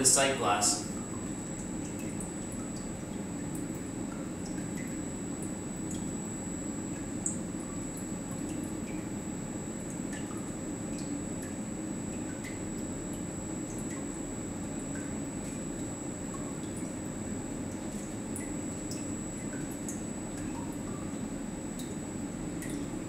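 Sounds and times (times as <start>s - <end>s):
liquid dripping: 0.0s - 23.0s
pump humming with high whine: 0.0s - 23.0s.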